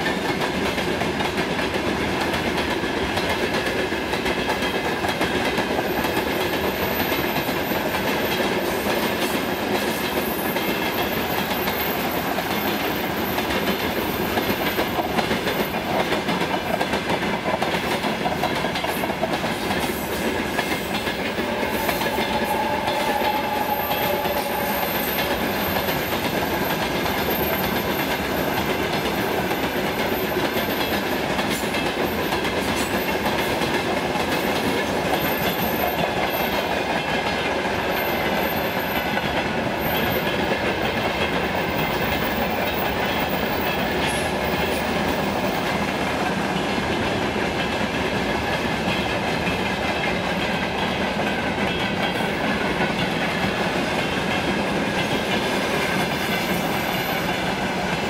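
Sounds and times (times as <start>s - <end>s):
freight train wheels on rails: 0.0s - 58.0s.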